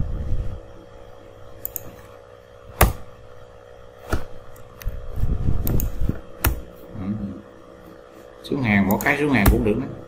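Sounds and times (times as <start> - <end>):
faint steady hum: 0.0 - 10.0
computer mouse clicks: 1.6 - 2.0, 5.6 - 6.6.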